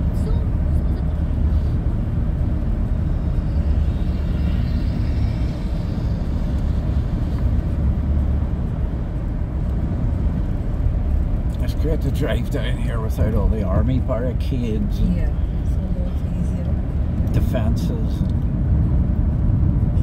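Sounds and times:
car engine and tyre rumble: 0.0 - 20.0.

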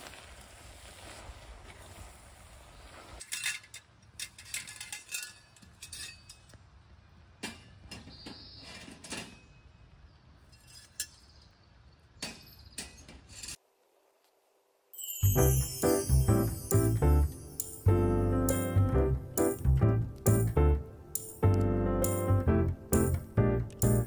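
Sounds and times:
metal cookware clinking: 3.3 - 6.6.

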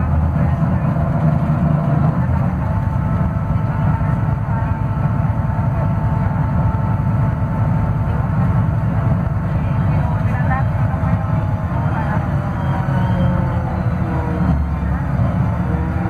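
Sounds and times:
bus engine drone: 0.0 - 16.0.

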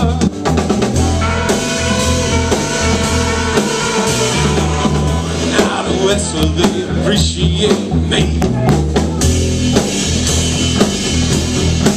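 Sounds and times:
drum kit with cymbals: 0.0 - 11.9
upright bass: 0.0 - 11.9
baritone saxophone long notes: 1.0 - 6.6.

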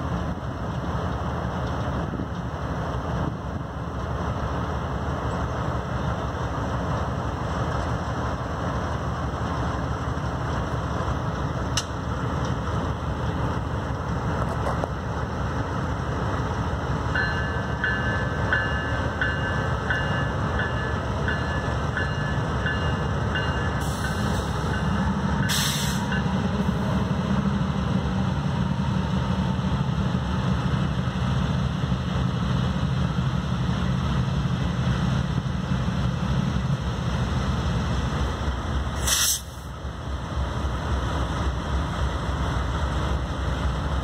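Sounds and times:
diesel locomotives rumbling: 0.0 - 44.0
short hiss: 25.5 - 26.1, 39.0 - 39.7.

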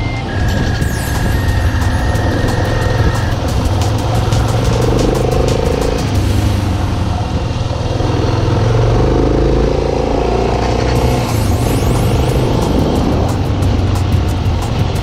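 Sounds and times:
motorcycle engine on dirt track: 0.0 - 15.0.

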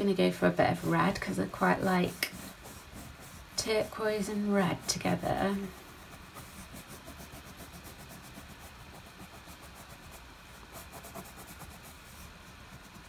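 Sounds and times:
crayon scratching on paper: 0.1 - 13.0.

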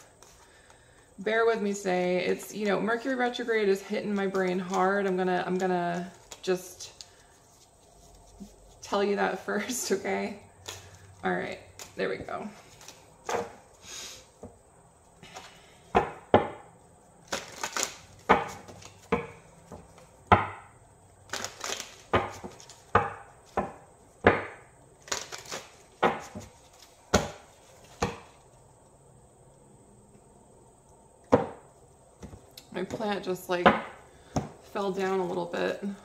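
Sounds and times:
cards being shuffled: 3.6 - 9.0, 11.8 - 13.8, 17.2 - 20.1, 21.2 - 23.7, 25.0 - 28.5.

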